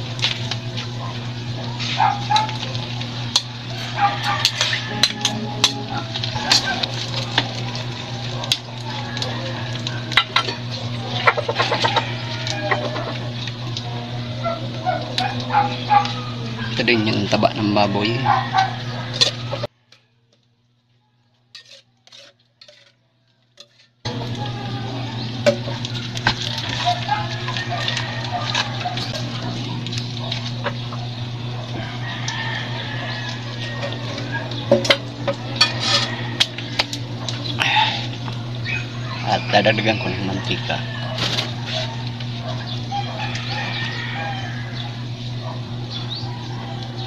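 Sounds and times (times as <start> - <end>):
food sizzling: 0.0 - 18.0, 23.6 - 39.2
steady low hum: 0.0 - 19.7, 23.6 - 47.0
metal spatula scraping a pan: 3.8 - 7.5, 21.5 - 23.0, 23.6 - 24.0, 35.6 - 36.5.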